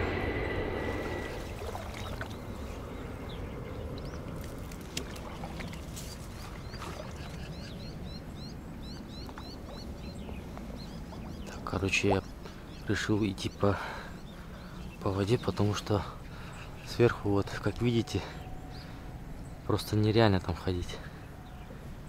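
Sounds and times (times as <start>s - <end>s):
bird rising chirps: 0.0s - 4.8s
water sloshing from wading: 0.0s - 7.7s.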